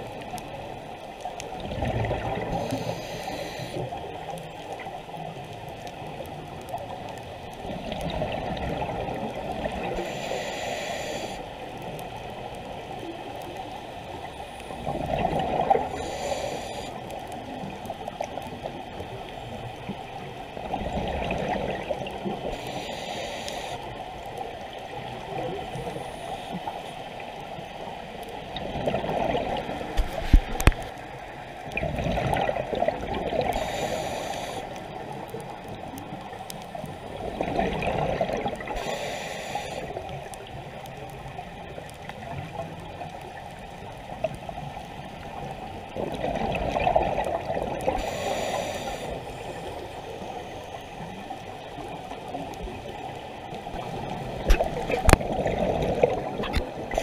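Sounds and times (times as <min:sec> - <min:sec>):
diver breathing through regulator: 0:02.4 - 0:04.0, 0:09.8 - 0:11.5, 0:15.6 - 0:17.1, 0:22.5 - 0:23.9, 0:33.4 - 0:34.8, 0:38.6 - 0:40.0, 0:47.8 - 0:50.4.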